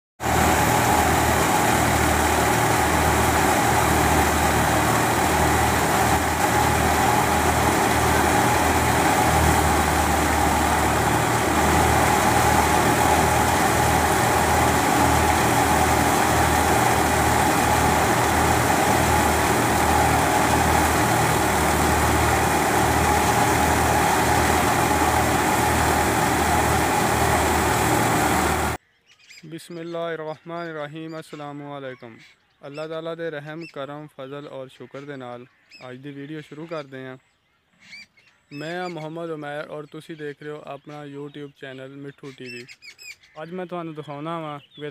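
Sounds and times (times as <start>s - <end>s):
low uneven throb: 0.2s - 28.8s
tractor engine running: 0.2s - 28.8s.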